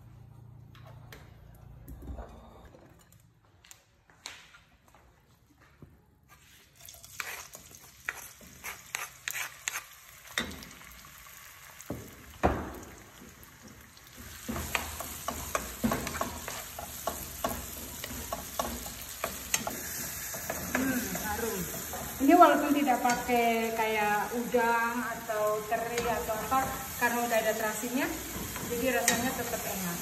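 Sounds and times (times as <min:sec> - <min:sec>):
paste sizzling in hot oil: 0:06.8 - 0:12.6
spatula scraping stone mortar: 0:07.2 - 0:09.9
spatula tapping wok: 0:11.9 - 0:23.8, 0:25.2 - 0:29.8.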